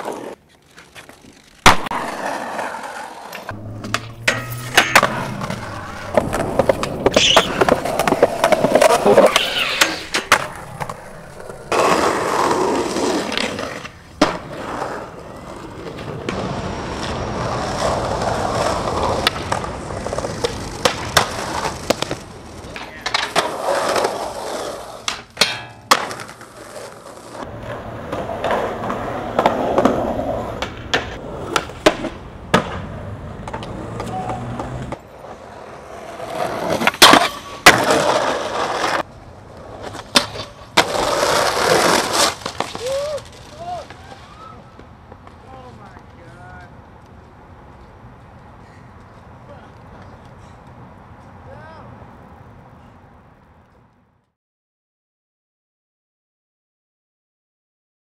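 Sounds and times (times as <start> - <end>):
skateboard popping and landing: 0.0 - 45.4
skateboard wheels rolling on concrete: 0.0 - 54.4.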